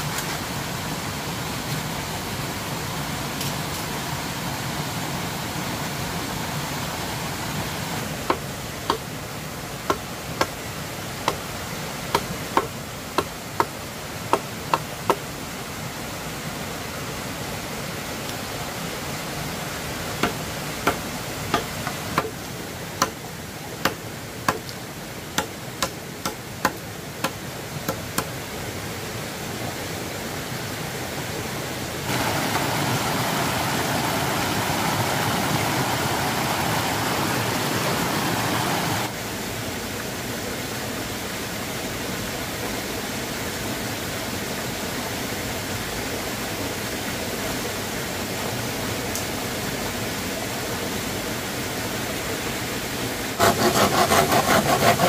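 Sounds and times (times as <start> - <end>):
sharp knocks of hand tool: 20.2 - 22.4
steady rushing noise: 31.7 - 39.2.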